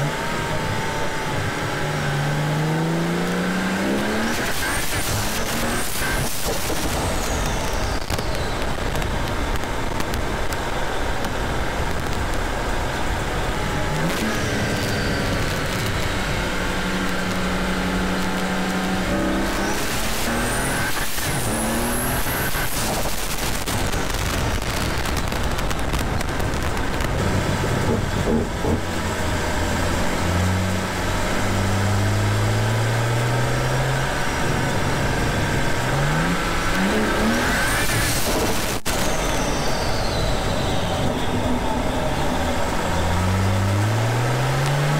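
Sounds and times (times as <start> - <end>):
car engine revving: 0.0 - 44.9
high rising turbo whistle: 34.3 - 44.6.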